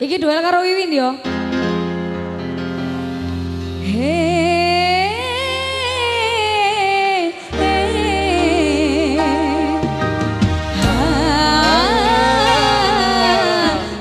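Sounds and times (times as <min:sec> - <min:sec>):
keyboard chords: 0:01.2 - 0:06.1, 0:07.5 - 0:14.0
woman singing with vibrato: 0:03.9 - 0:10.0, 0:10.8 - 0:14.0.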